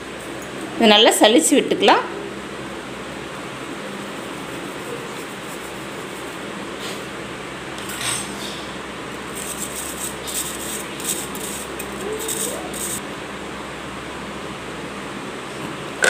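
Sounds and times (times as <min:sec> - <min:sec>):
spoon scraping metal mesh strainer: 0:09.3 - 0:13.0.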